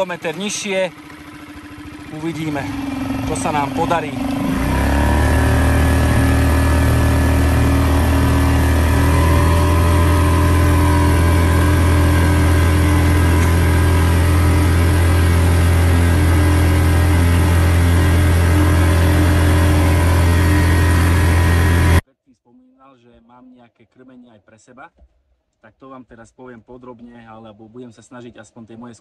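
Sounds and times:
outboard motor running: 0:00.0 - 0:22.0.

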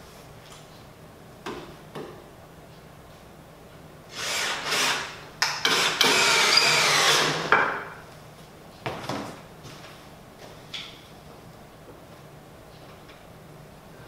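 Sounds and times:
cordless drill driving screws into wood: 0:04.1 - 0:07.5.

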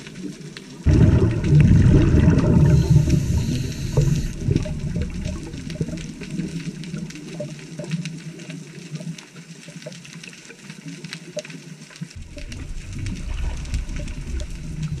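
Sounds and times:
muffled underwater rushing water: 0:00.0 - 0:15.0
low rumble: 0:00.9 - 0:07.3, 0:12.2 - 0:15.0
faint clicks: 0:02.7 - 0:15.0.

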